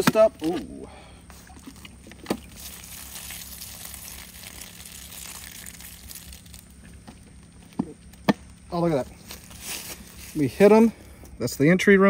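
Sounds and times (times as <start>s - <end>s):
soda hissing onto grass: 2.5s - 6.7s.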